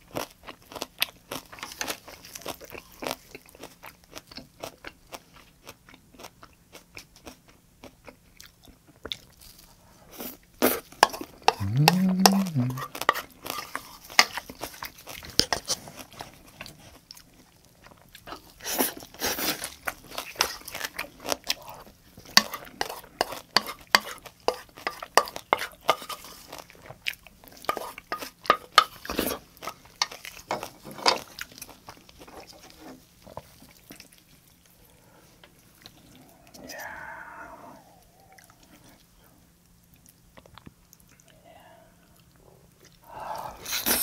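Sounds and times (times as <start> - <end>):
chewing and crunching food: 0.0 - 44.0
chopsticks scraping a bowl: 22.3 - 26.6, 27.6 - 31.2.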